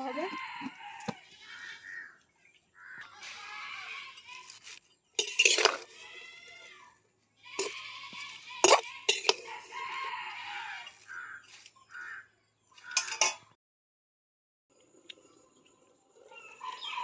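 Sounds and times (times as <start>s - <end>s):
rooster crowing: 0.0s - 2.0s, 8.6s - 11.4s
metal spatula scraping a pan: 3.2s - 6.2s, 7.5s - 11.2s.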